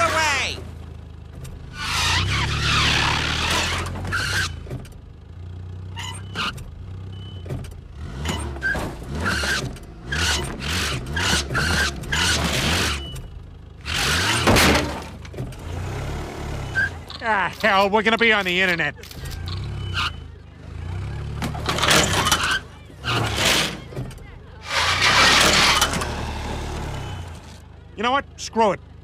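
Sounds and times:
tyres squealing: 0.0 - 0.6, 1.7 - 4.8, 5.8 - 6.6, 8.2 - 15.0, 16.6 - 27.5
car engine revving: 1.3 - 4.8, 7.8 - 13.2, 13.8 - 17.0, 19.2 - 27.6.

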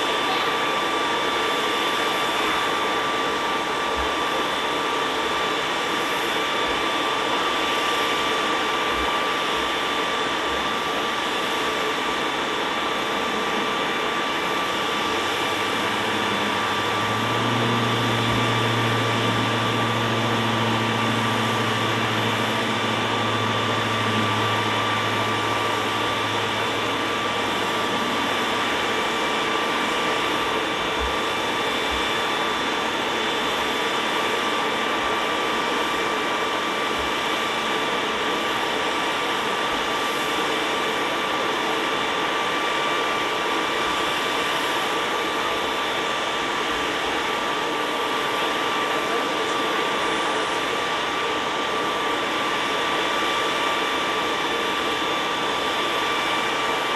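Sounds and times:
aircraft turbine engine running: 0.0 - 56.9
low hum: 13.1 - 35.1.

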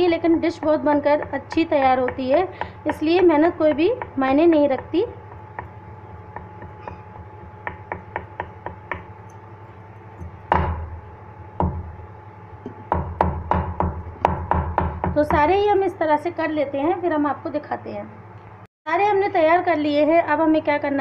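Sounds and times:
rolling pin knocking on meat: 0.3 - 9.2, 10.2 - 11.0, 12.6 - 15.6
utensil tapping meat on wooden board: 0.6 - 9.4.

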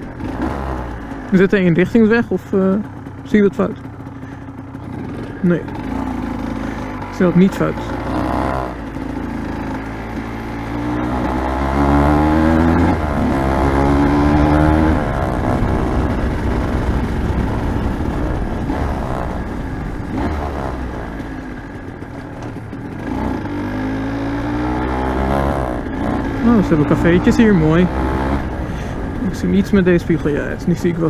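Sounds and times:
motorcycle engine accelerating: 0.0 - 31.0
wind noise: 11.8 - 21.3.

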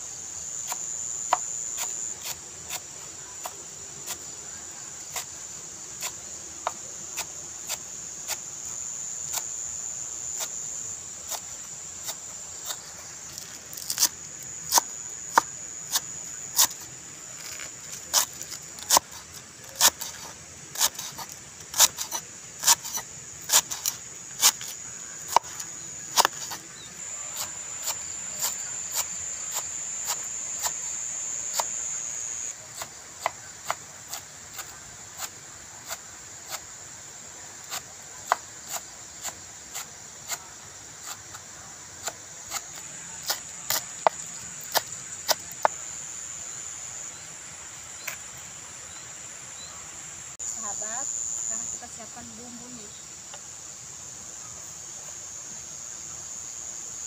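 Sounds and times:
high-pitched insect drone: 0.0 - 32.6, 48.8 - 57.0
knife chopping on wooden board: 20.8 - 26.6.

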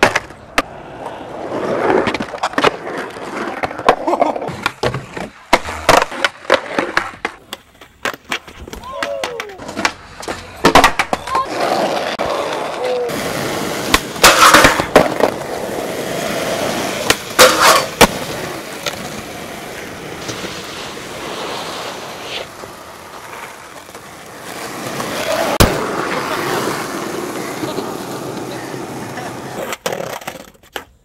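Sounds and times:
skateboard clacks and slaps: 0.0 - 31.0
skateboard wheels rolling on pavement: 0.0 - 31.0.

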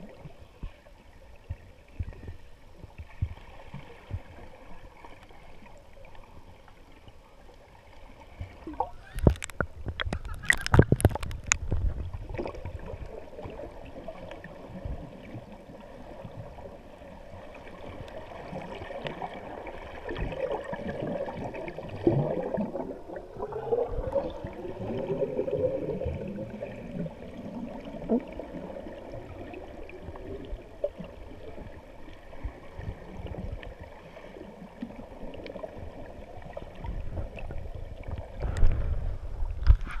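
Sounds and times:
muffled underwater water bubbling: 8.0 - 40.0.

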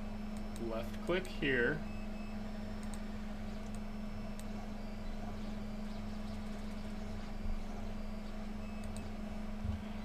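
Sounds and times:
low room hum: 0.0 - 10.0
faint clicks: 2.8 - 4.5, 8.8 - 9.2.

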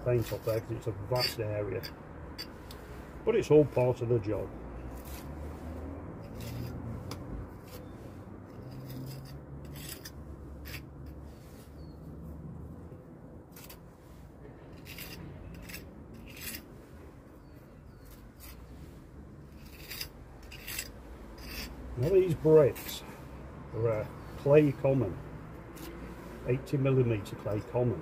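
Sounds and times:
metal tool scraping mortar: 0.0 - 3.0, 4.9 - 5.3, 6.2 - 11.2, 13.5 - 13.8, 14.7 - 16.7, 17.9 - 18.7, 19.4 - 23.2.

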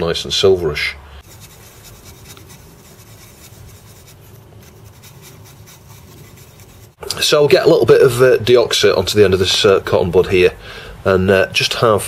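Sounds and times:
background hiss: 0.0 - 12.0
hands rubbing and scratching: 1.2 - 7.0.

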